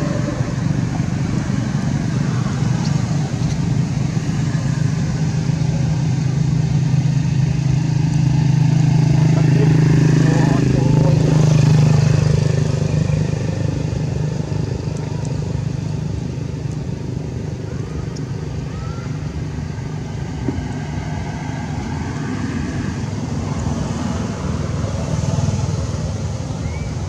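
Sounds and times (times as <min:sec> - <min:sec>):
vehicle engine rumbling: 0:00.0 - 0:27.0.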